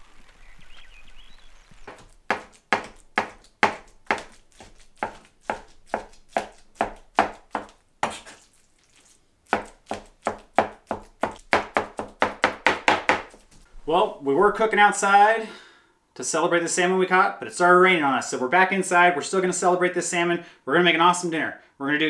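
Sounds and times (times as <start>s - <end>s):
knife chopping on plastic board: 1.9s - 8.4s, 9.5s - 13.4s.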